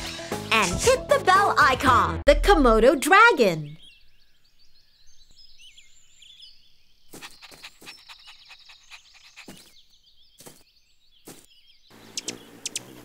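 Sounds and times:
small birds chirping: 2.8s - 13.0s.

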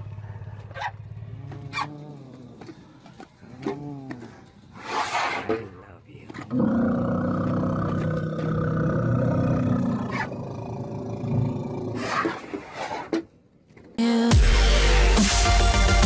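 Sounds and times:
elephant rumbling call: 0.0s - 5.5s, 6.4s - 13.1s
electronic music with heavy bass: 14.1s - 16.0s.

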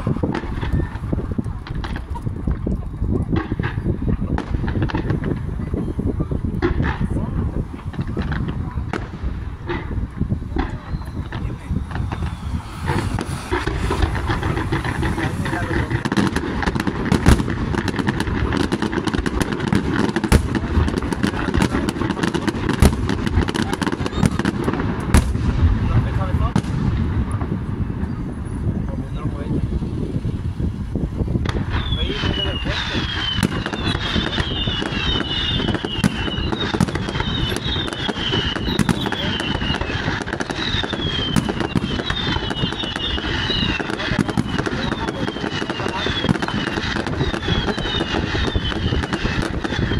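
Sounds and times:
low rumble: 0.0s - 34.0s
fireworks bursting: 0.0s - 49.9s
fireworks crackles: 0.0s - 49.9s.

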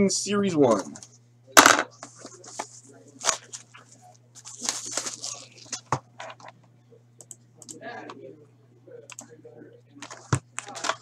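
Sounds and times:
steady low hum: 0.0s - 11.0s
plastic wrap crinkling and ripping: 4.4s - 5.9s.

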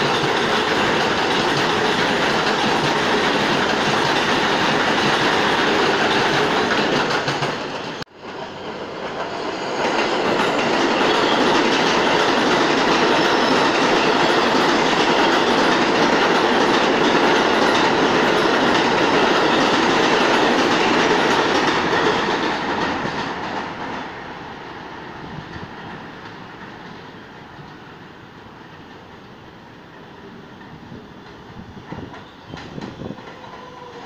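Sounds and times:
subway train passing: 0.0s - 34.0s.

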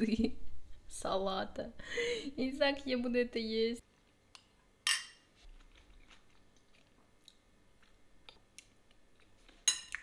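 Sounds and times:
faint chewing: 5.4s - 10.0s.

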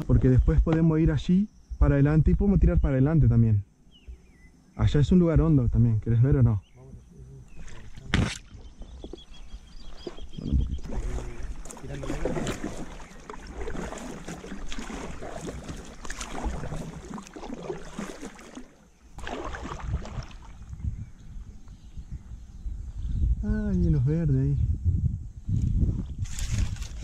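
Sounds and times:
branches scraping boat: 7.5s - 20.6s
paddle splashing and dripping: 7.6s - 20.8s.

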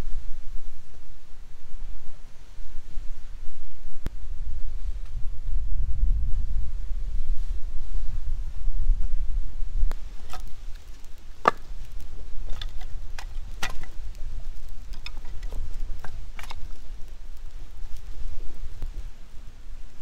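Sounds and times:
wind rumbling on microphone: 0.0s - 20.0s
firewood knocking together: 10.2s - 14.0s, 14.9s - 16.8s.

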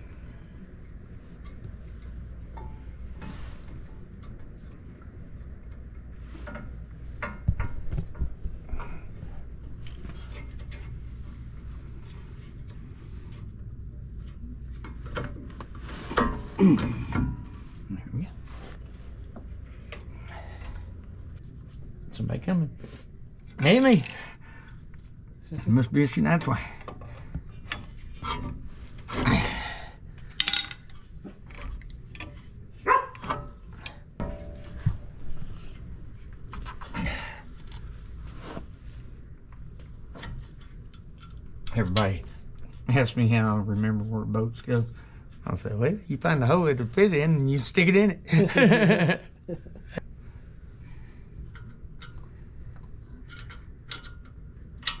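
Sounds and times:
metal tools clinking and scraping: 23.5s - 24.4s, 30.3s - 31.1s
metal clicks and knocks: 51.5s - 55.0s.

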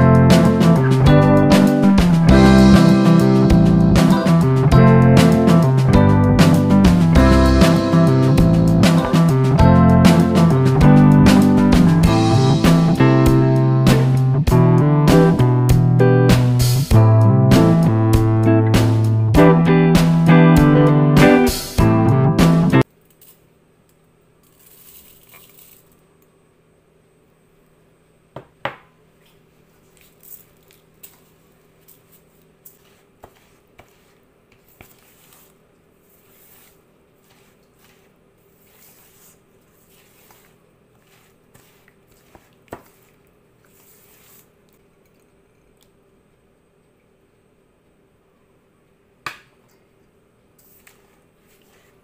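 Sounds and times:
faint steady hum: 22.8s - 52.0s
spatula scraping in bowl: 32.7s - 44.5s.

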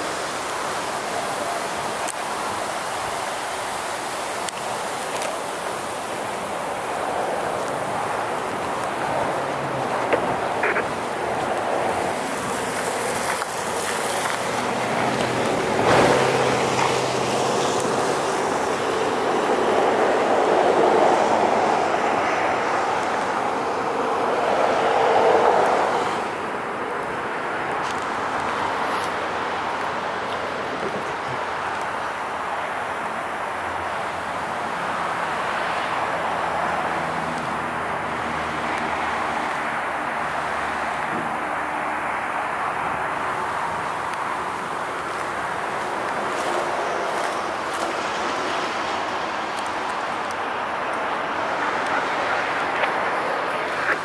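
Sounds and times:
passing vehicle engine and tyres: 0.0s - 54.0s
vehicle passing by: 6.8s - 26.6s.

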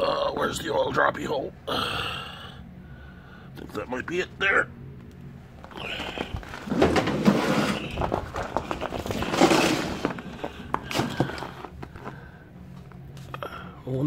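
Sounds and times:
faint low hum: 0.0s - 14.0s
rustling handling noise: 5.6s - 13.2s
shuffling footsteps: 5.6s - 13.3s.

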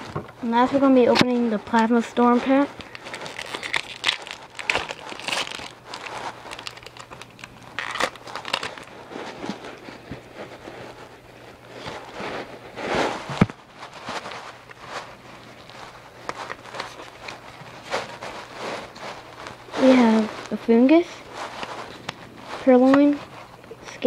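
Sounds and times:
foil wrapper tearing and crinkling: 1.6s - 12.6s, 13.2s - 20.6s.

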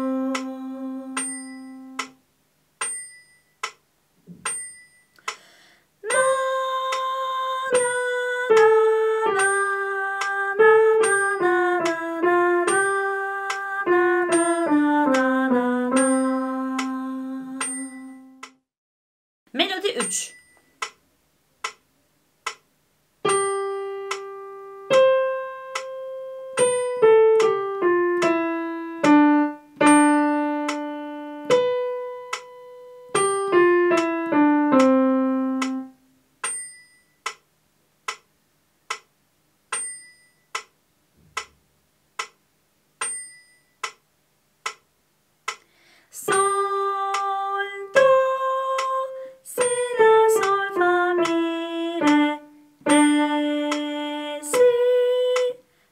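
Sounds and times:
metronome ticking: 1.1s - 2.2s, 2.8s - 3.8s, 4.4s - 7.1s, 19.8s - 21.0s, 21.6s - 35.8s, 36.4s - 38.3s, 38.9s - 39.1s, 39.7s - 40.8s, 42.2s - 42.4s, 43.0s - 45.7s, 52.0s - 55.6s
keyboard piano melody: 6.1s - 18.6s, 23.2s - 36.7s.

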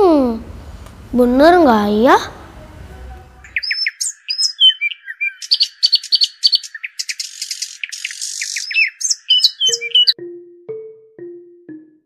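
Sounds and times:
songbirds chirping: 2.9s - 10.2s
harsh buzzy bird calls: 3.4s - 10.2s.

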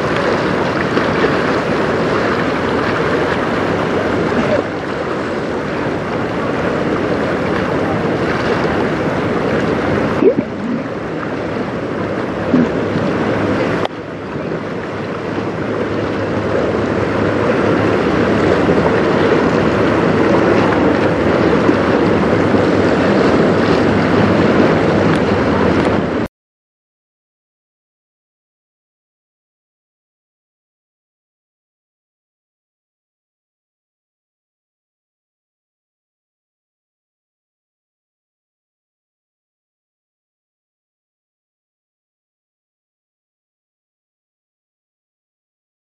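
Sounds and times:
river water lapping: 0.0s - 26.3s
wind on microphone: 0.0s - 26.3s.

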